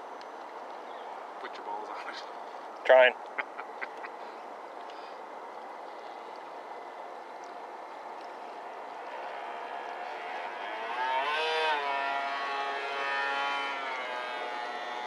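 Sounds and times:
motor whine rising in pitch: 8.9s - 15.0s.

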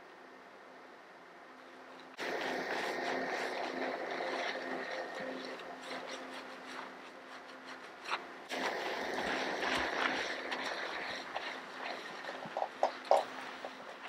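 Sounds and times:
faint constant hum: 0.0s - 14.0s
water rushing: 2.2s - 6.3s, 8.5s - 14.0s.

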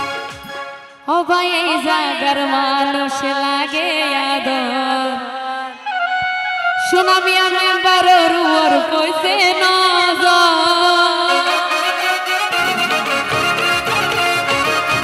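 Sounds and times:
keyboard: 0.0s - 15.0s
woman singing: 1.1s - 12.2s
tabla strokes: 12.3s - 15.0s.

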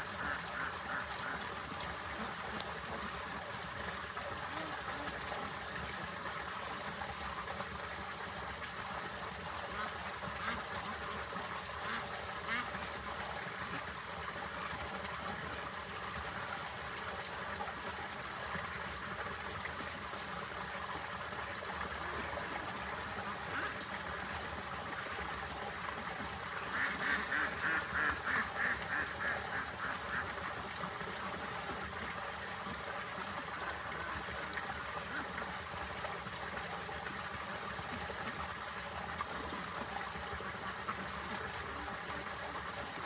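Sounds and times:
duck quacking: 26.7s - 30.2s.

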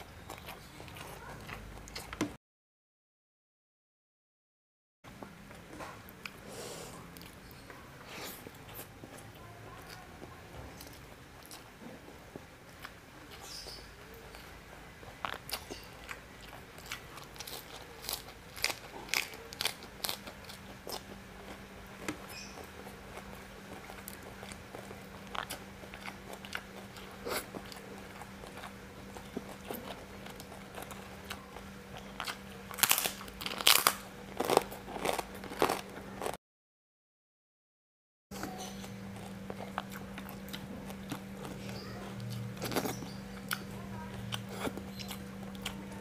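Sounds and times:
chewing and mouth clicks: 15.1s - 32.8s, 38.4s - 46.0s
crunchy bites: 15.2s - 31.4s, 32.0s - 36.4s, 38.4s - 43.7s.

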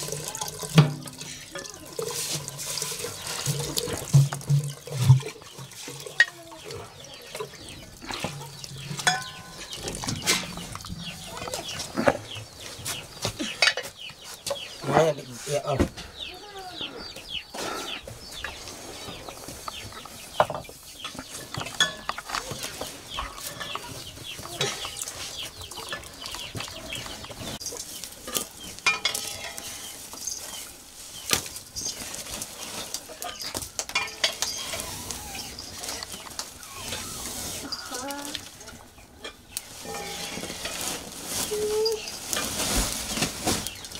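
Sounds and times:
metal cookware clinking and scraping: 0.0s - 11.8s, 20.5s - 22.7s, 23.3s - 30.6s, 32.8s - 34.8s, 37.0s - 42.7s.

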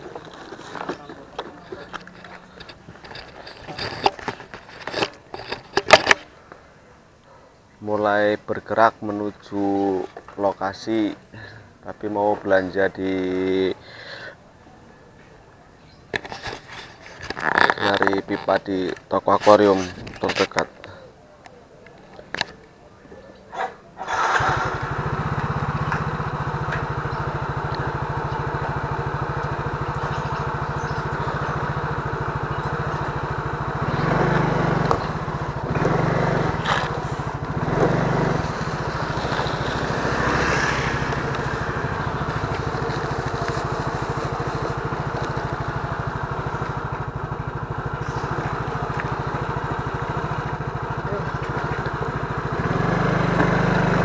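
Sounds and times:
scooter engine running: 0.0s - 6.2s, 24.0s - 54.0s
road noise: 0.0s - 54.0s.

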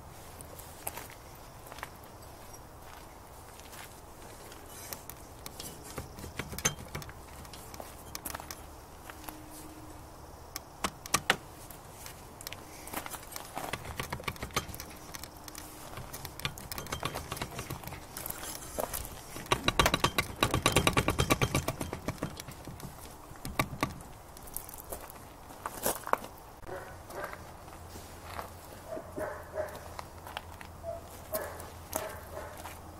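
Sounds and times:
metal clinks and taps: 5.0s - 8.7s, 13.7s - 24.0s
ratchet wrench clicking: 13.8s - 18.7s, 19.4s - 22.8s.

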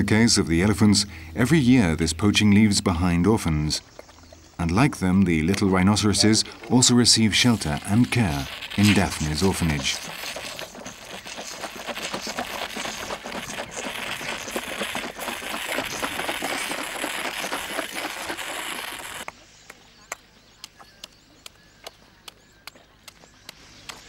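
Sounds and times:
calf slurping and gulping milk: 3.4s - 19.3s.

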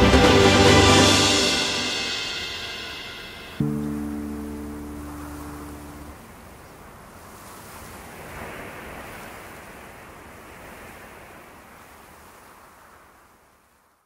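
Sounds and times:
steady rushing noise: 0.0s - 6.5s.

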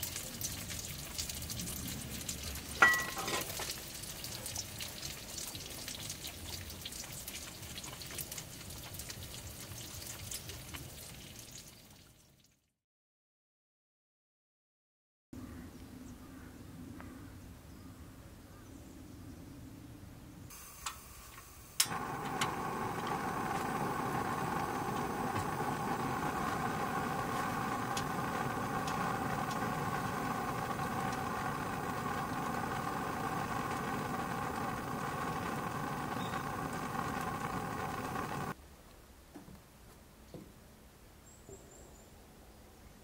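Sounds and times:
gas burner hissing: 2.7s - 3.6s, 20.5s - 38.6s
gas burner ignition click: 20.5s - 38.5s.

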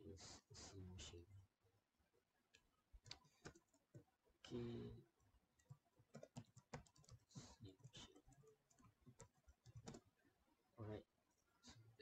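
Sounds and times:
keyboard typing: 3.0s - 4.1s, 5.6s - 10.1s.

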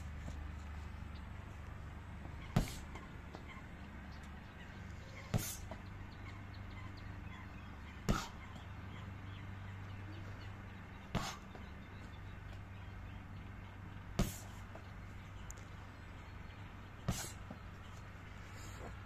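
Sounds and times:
low background hum: 0.0s - 19.0s
foot striking a kick pad: 2.6s - 2.8s.

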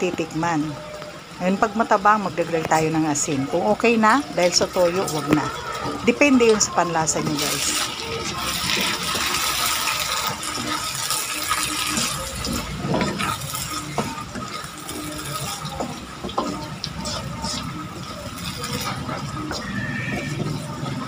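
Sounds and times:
stew sloshing and hissing in pan: 3.8s - 21.0s
spatula scraping a pan: 7.3s - 21.0s.

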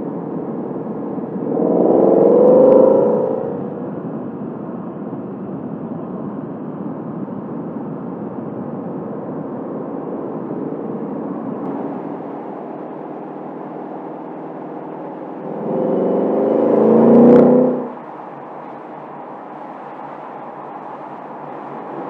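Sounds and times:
car engine and road noise drone: 0.0s - 22.0s.

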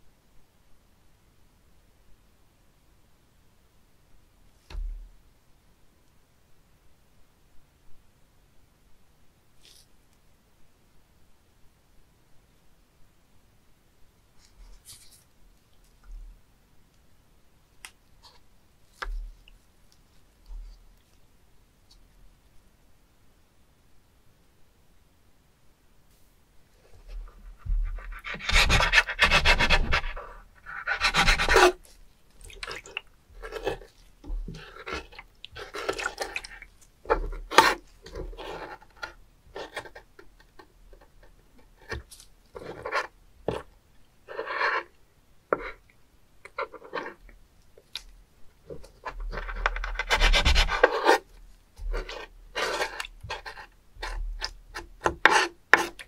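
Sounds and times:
knife scraping on wooden board: 27.7s - 31.9s, 33.4s - 39.9s, 49.3s - 56.0s.

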